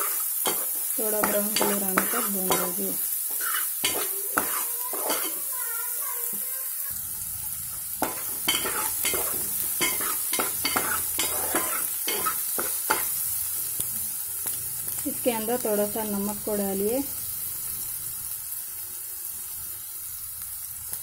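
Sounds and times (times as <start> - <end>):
steel spoon scraping a pot: 0.0 - 5.5, 8.0 - 13.2
onions sizzling in hot oil: 0.0 - 21.0.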